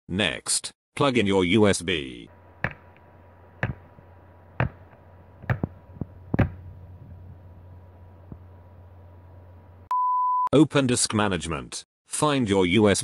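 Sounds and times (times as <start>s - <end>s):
faint steady hum: 2.3s - 9.9s.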